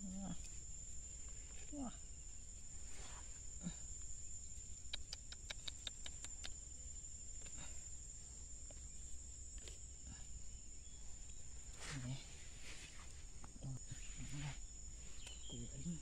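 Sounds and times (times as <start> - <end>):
crickets droning: 0.0 - 16.0
sharp ticks: 4.8 - 6.6.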